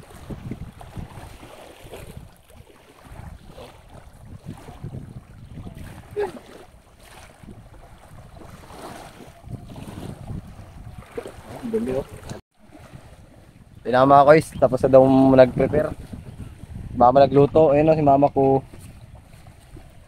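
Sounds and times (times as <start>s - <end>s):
water sloshing around wading feet: 0.0s - 13.8s, 18.5s - 20.0s
wind rumbling on microphone: 0.0s - 20.0s.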